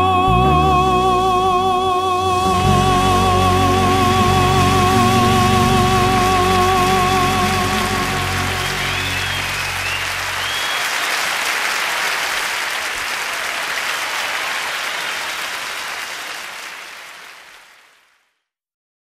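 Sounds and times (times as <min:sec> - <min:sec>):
song ending notes: 0:00.0 - 0:10.8
audience applause: 0:02.5 - 0:18.2.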